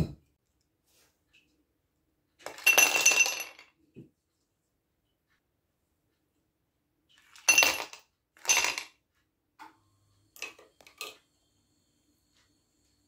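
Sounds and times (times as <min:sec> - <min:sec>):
kitchenware clinking: 0:02.4 - 0:03.8, 0:07.2 - 0:09.0.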